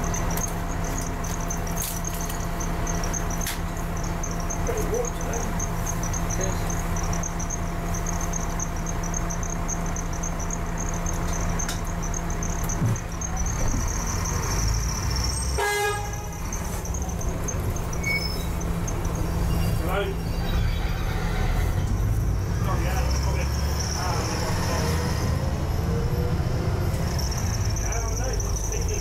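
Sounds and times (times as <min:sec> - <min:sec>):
bus engine idling: 0:00.0 - 0:29.0
bus pulling away: 0:00.0 - 0:29.0
vehicle horn toot: 0:15.5 - 0:16.5.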